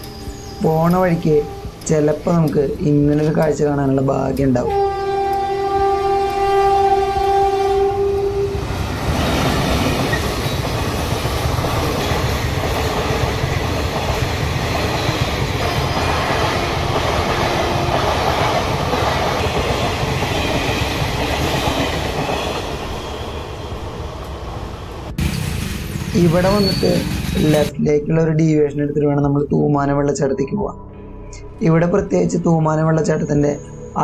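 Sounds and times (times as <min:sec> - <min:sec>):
train wheels rumbling on track: 0:00.0 - 0:27.7
train horn blast: 0:01.1 - 0:02.3, 0:04.6 - 0:08.8, 0:15.6 - 0:18.3.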